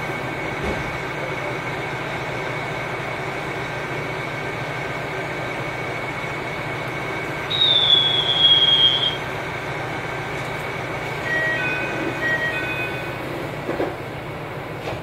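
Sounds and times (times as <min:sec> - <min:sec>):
railcar rumble: 0:00.0 - 0:15.0
high wheel squeal: 0:07.5 - 0:09.3, 0:11.2 - 0:13.3
faint high tone: 0:11.2 - 0:13.2.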